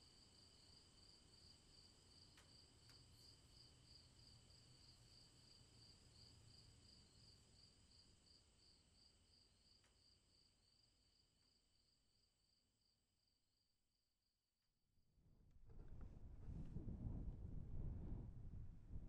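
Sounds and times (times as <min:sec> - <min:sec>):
low rumble: 0:15.5 - 0:19.0.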